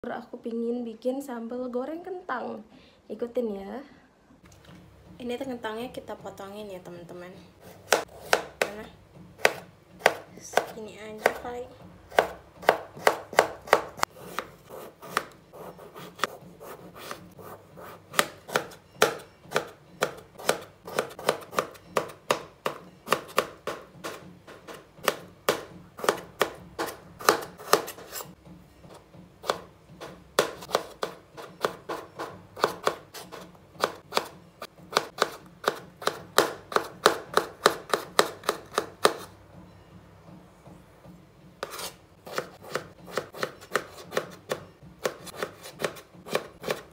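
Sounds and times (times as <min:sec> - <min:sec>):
knife chopping on wooden board: 0:07.6 - 0:11.4, 0:12.1 - 0:28.4, 0:29.4 - 0:39.3, 0:41.6 - 0:46.9.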